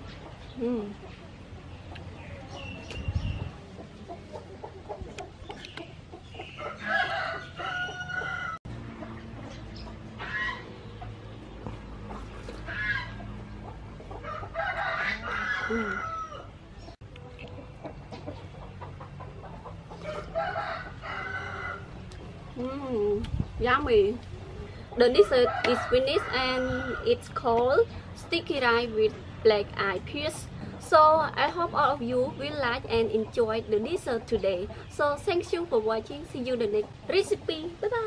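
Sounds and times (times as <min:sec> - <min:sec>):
chickens calling: 0:00.0 - 0:22.6, 0:23.4 - 0:38.0
chickens clucking: 0:00.0 - 0:38.0
rooster crowing: 0:06.7 - 0:08.6, 0:14.2 - 0:16.5, 0:20.0 - 0:21.9.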